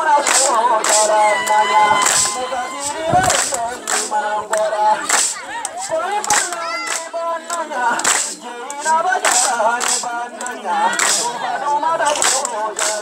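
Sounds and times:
voices singing a melody: 0:00.0 - 0:13.0
sharp percussive cracks: 0:05.1 - 0:05.4, 0:08.0 - 0:11.3.

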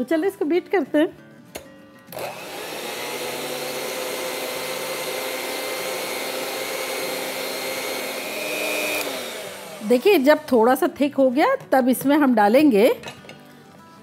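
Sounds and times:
electric hand mixer whirring: 0:02.1 - 0:10.8.

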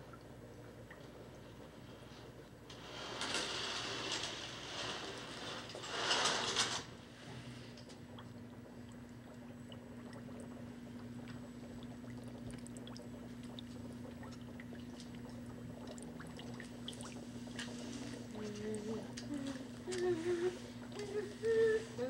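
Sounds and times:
curtain scraping along rail: 0:02.7 - 0:06.9
lab equipment hum: 0:06.9 - 0:22.0.

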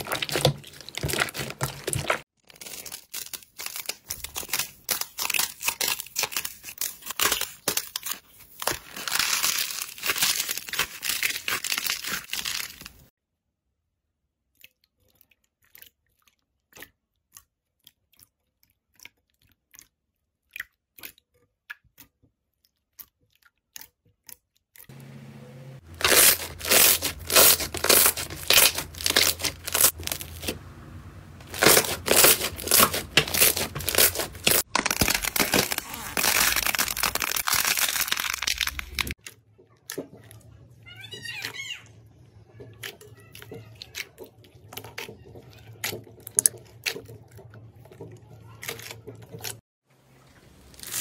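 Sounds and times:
slime crackling and popping: 0:25.9 - 0:30.6, 0:31.4 - 0:39.2.

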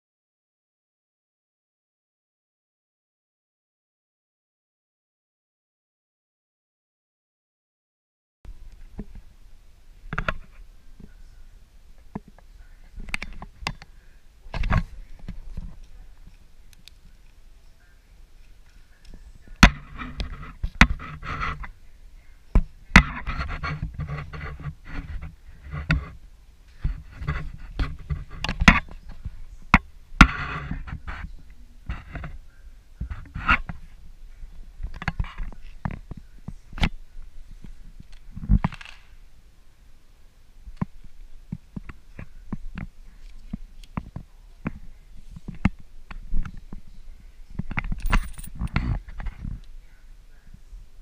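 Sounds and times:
pen scratching on paper: 0:23.0 - 0:26.1
handling clicks and knocks: 0:47.6 - 0:49.4
coins clattering: 0:48.0 - 0:48.6
coins clinking on plastic jug: 0:48.0 - 0:48.6.

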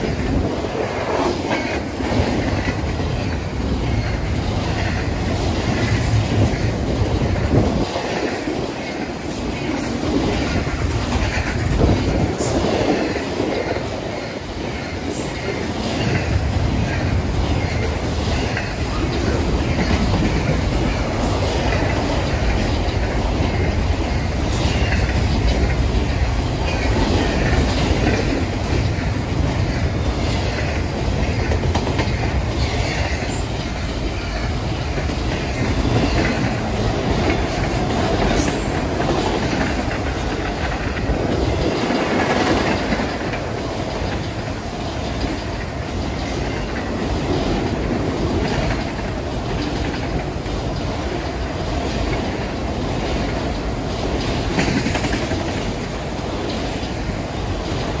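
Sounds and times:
freight train rumbling past: 0:00.0 - 0:58.0
wheels clacking over rail joints: 0:00.0 - 0:58.0.

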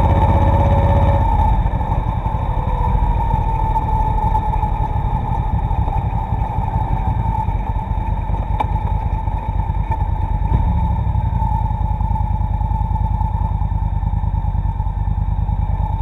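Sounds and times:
muffled motorcycle engine rumble: 0:00.0 - 0:16.0.

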